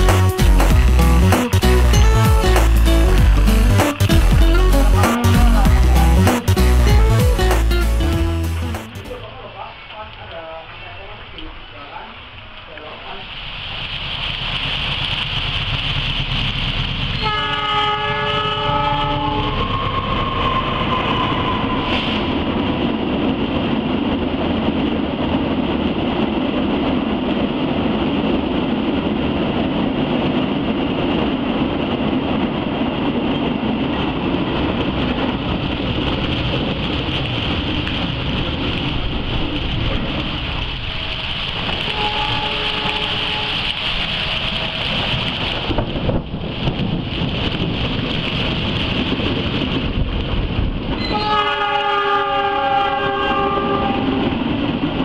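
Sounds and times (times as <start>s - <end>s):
heavy rain: 0.0s - 25.4s, 33.0s - 55.0s
freight train rolling past: 0.0s - 55.0s
train air horn: 17.2s - 22.2s, 41.8s - 43.8s, 51.0s - 54.4s.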